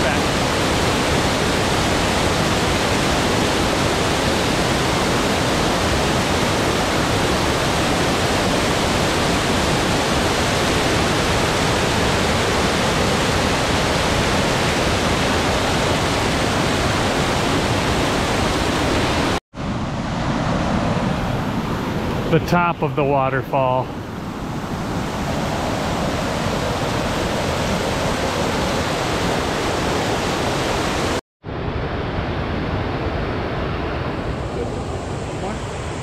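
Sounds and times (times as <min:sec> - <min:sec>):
waterfall rushing: 0:22.3 - 0:23.8.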